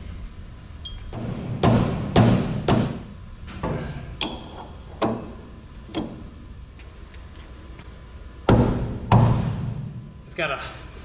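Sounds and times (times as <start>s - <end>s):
sharp knocks on metal bolt: 1.6s - 3.0s.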